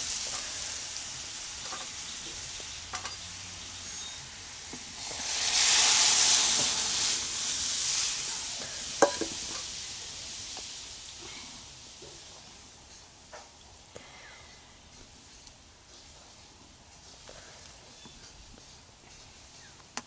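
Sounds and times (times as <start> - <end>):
food sizzling in a metal pan: 0.0 - 13.5
spoon stirring in a pan: 9.0 - 9.7.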